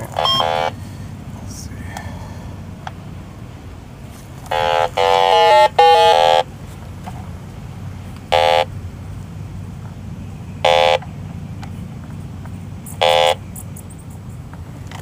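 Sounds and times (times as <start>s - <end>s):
leak detector beeping: 0.0s - 0.8s, 4.5s - 6.6s, 8.2s - 8.8s, 10.6s - 11.2s, 12.8s - 14.3s.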